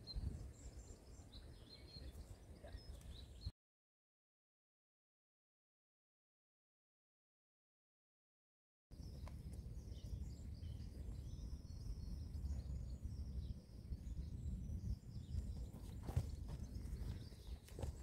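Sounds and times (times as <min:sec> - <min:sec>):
small birds chirping: 0:00.0 - 0:03.5, 0:08.9 - 0:18.0
wind rumbling on microphone: 0:00.0 - 0:03.5, 0:08.9 - 0:18.0.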